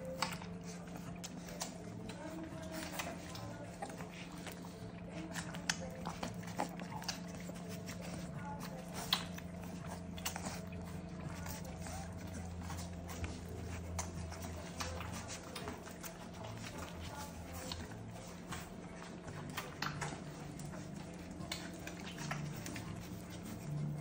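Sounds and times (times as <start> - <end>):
puppies suckling: 0.0 - 24.0
steady low hum: 0.0 - 24.0.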